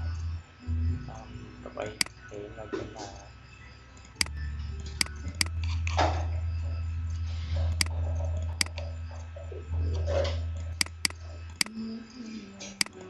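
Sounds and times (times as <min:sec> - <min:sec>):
low steady hum: 0:00.0 - 0:13.0
computer mouse clicking: 0:04.0 - 0:06.0, 0:07.7 - 0:08.9, 0:10.6 - 0:11.8, 0:12.6 - 0:13.0.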